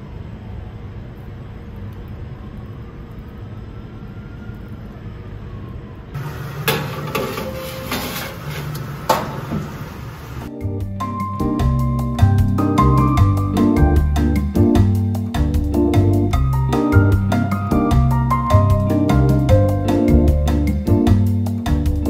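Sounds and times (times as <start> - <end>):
objects clattering and knocking: 6.6 - 9.7
music: 10.5 - 22.0.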